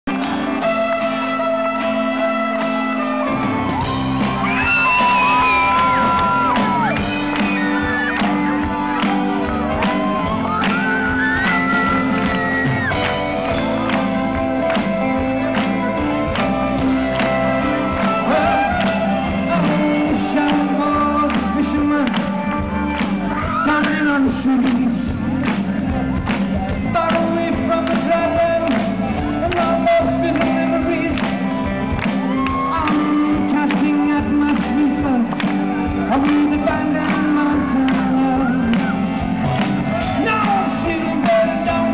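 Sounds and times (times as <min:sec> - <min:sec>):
live rock band playing: 0:00.1 - 0:41.9
person singing: 0:00.1 - 0:41.9
crowd shouting along: 0:03.3 - 0:13.3.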